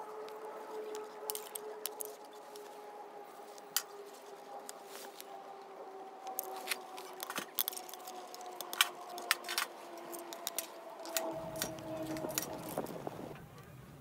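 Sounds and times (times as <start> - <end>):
wooden sticks knocking and clattering: 0.9 - 2.7, 6.2 - 13.2
wood fire crackling and popping: 6.2 - 13.4.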